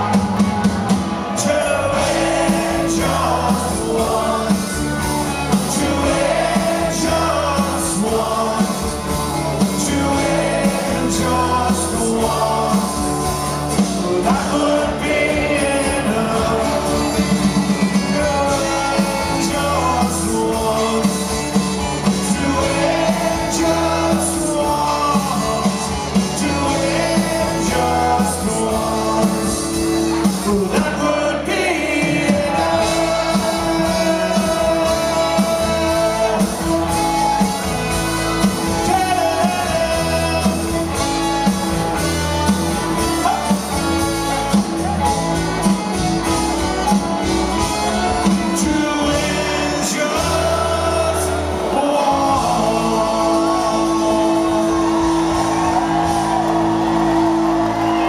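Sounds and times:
crowd shouting: 0.0s - 21.1s, 41.7s - 58.0s
person singing: 0.0s - 37.8s, 38.4s - 41.2s, 46.8s - 58.0s
drums: 0.0s - 58.0s
electric guitars: 0.0s - 58.0s.

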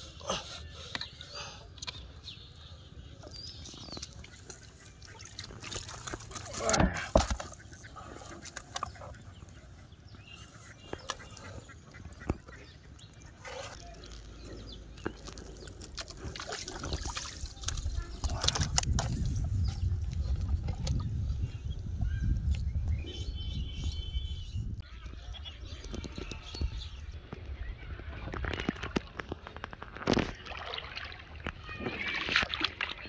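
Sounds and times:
water splashing in a tub: 3.7s - 7.6s, 15.8s - 19.1s, 29.8s - 33.0s.

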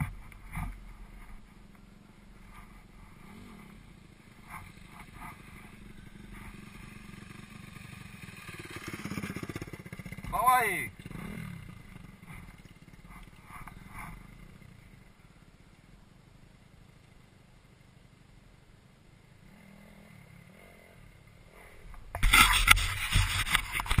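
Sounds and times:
distant motorcycle engines: 0.0s - 24.0s
loud rough rushing noise: 4.4s - 13.0s.

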